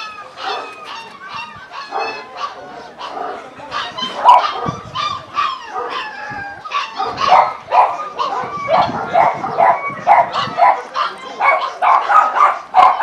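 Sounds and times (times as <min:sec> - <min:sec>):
dogs barking and yipping: 0:00.0 - 0:13.0.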